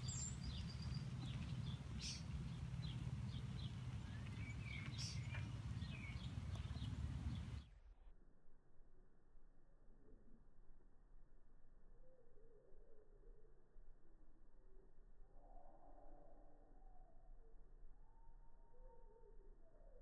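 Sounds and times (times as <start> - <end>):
small birds chirping: 0.0 - 7.7
steady low rumble: 0.0 - 7.8.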